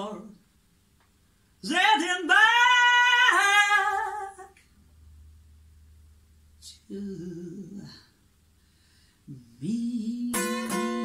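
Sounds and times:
woman humming: 6.6s - 8.1s.

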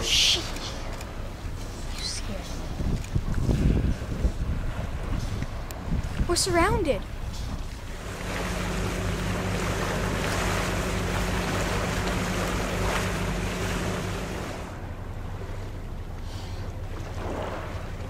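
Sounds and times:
waves washing around boat: 0.0s - 18.0s
wind on microphone: 2.2s - 14.8s
steady low hum: 6.9s - 18.0s.

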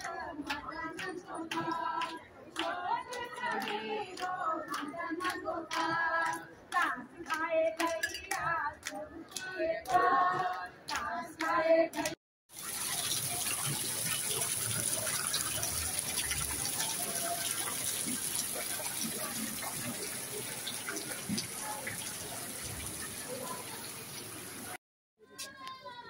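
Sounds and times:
group singing: 0.0s - 12.2s
hand claps: 0.0s - 12.2s
water pouring into a pool: 12.5s - 24.8s.

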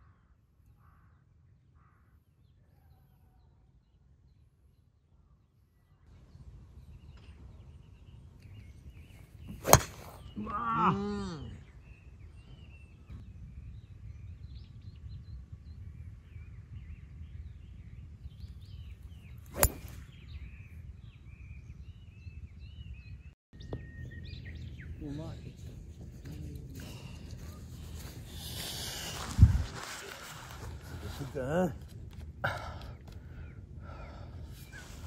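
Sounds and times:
birds chirping: 6.7s - 31.8s, 32.4s - 35.0s
golf club striking ball: 9.5s - 10.2s, 19.5s - 20.0s.

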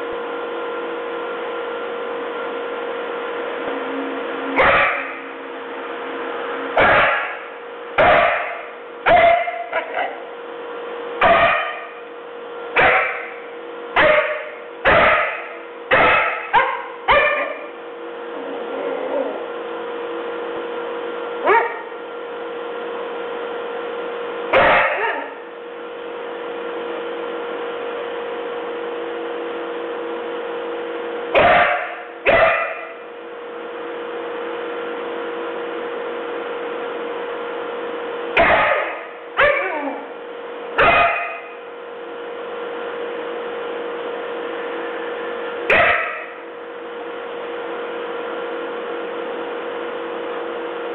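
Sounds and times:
steady hum: 0.0s - 50.9s
dog barking: 4.6s - 5.2s, 6.8s - 10.2s, 11.2s - 12.0s, 12.8s - 13.4s, 14.0s - 17.7s, 21.4s - 22.0s, 24.5s - 25.4s, 31.4s - 33.0s, 38.4s - 40.1s, 40.8s - 41.6s, 45.7s - 46.4s.

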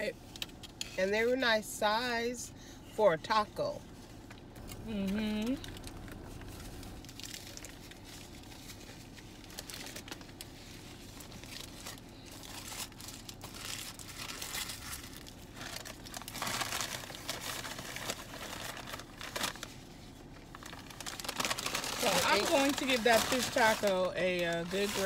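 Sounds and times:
paper wrappers crinkling: 5.4s - 25.0s.

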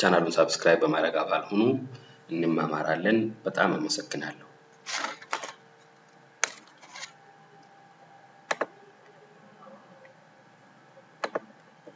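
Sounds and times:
faint steady hum: 0.0s - 11.9s
computer mouse clicking: 8.5s - 8.7s, 11.2s - 11.9s.

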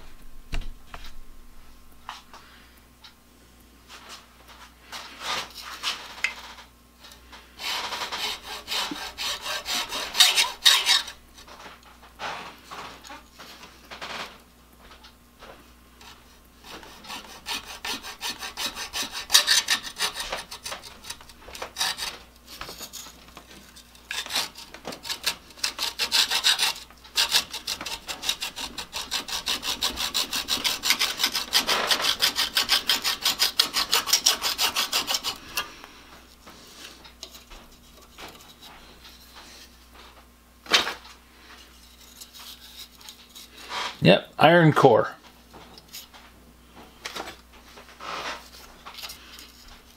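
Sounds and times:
hacksaw rasping strokes: 7.6s - 11.2s, 16.6s - 22.2s, 24.1s - 35.7s.

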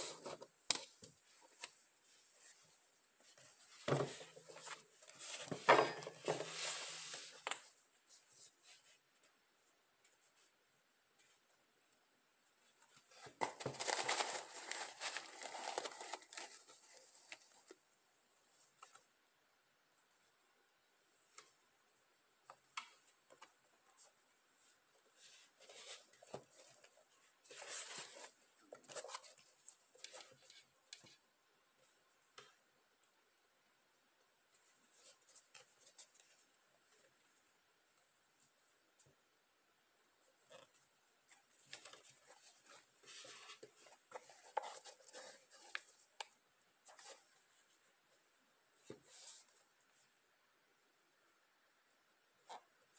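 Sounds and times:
sneaker rustling in hands: 0.0s - 9.1s.

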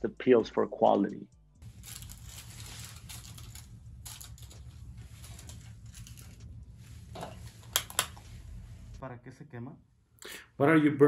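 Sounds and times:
steady low hum: 1.4s - 10.6s
foil rustling and tool clicks: 1.6s - 8.4s.

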